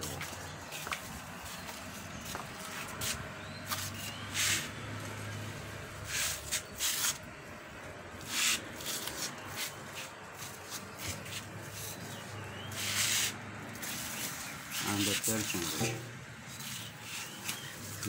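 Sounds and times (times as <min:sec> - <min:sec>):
cats hissing: 0:12.7 - 0:13.9.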